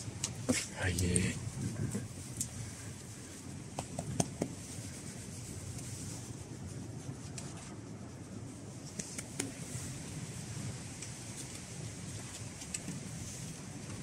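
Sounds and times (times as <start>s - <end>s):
hand rustling dog fur: 0.5s - 14.0s.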